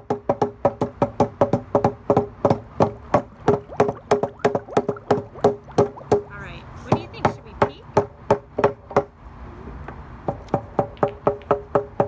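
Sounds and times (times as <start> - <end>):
rubber mallets knocking on table: 0.1 - 5.3, 10.3 - 12.0.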